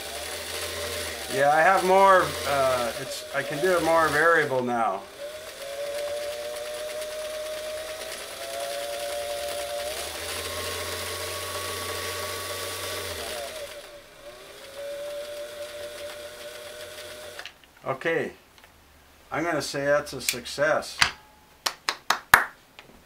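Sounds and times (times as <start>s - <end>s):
sewing machine motor whine: 0.0s - 17.5s.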